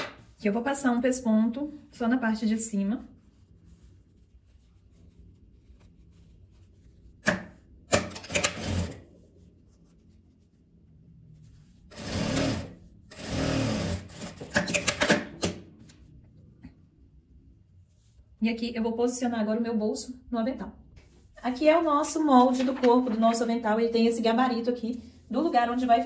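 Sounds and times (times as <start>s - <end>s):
sewing machine running: 8.0s - 9.0s, 11.9s - 15.2s.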